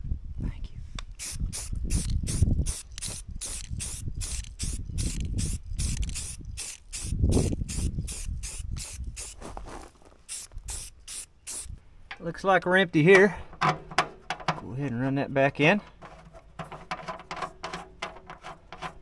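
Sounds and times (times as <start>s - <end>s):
spray paint can hissing: 1.2s - 9.6s, 10.2s - 11.8s.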